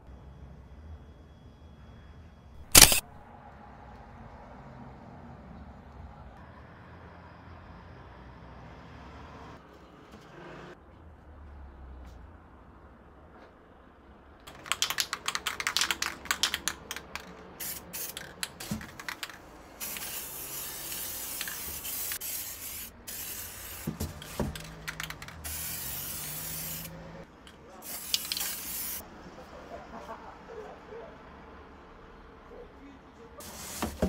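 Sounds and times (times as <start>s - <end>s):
spray paint hissing: 2.6s - 3.2s, 14.6s - 27.0s, 27.8s - 29.0s
spray can ball rattling: 14.5s - 26.9s, 27.8s - 29.0s.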